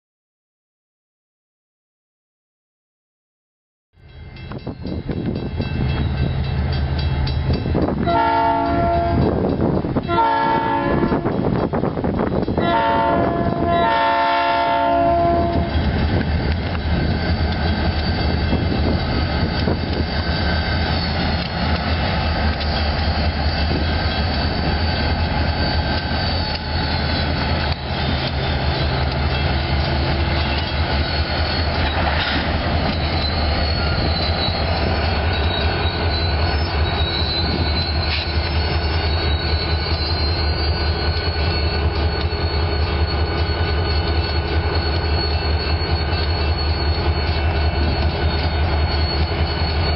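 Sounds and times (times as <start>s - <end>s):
train air horn blasts: 8.0s - 9.3s, 10.0s - 11.4s, 12.6s - 15.8s.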